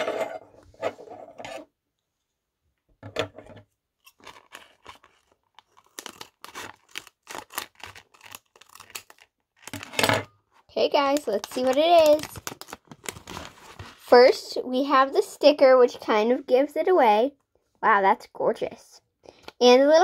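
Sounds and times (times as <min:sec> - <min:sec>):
scissors snipping plastic: 0:11.1 - 0:13.2.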